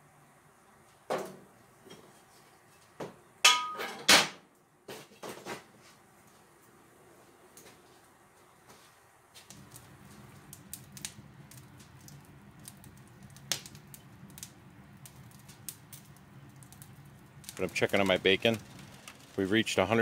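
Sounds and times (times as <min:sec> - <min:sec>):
wood fire crackling: 0:06.0 - 0:20.0.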